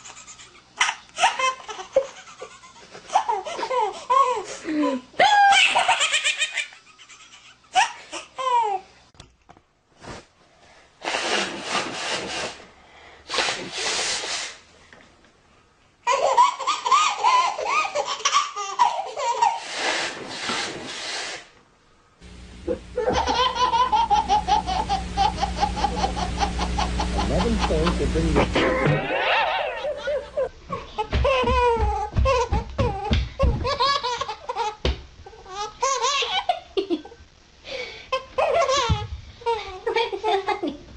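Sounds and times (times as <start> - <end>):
babies laughing: 0.0 - 4.5, 5.3 - 8.8, 16.0 - 19.7, 23.0 - 34.8
toddler laughing in bursts: 0.0 - 4.5, 5.4 - 8.8, 16.0 - 19.7, 23.0 - 34.8, 35.5 - 36.8
steady low hum: 21.8 - 35.7.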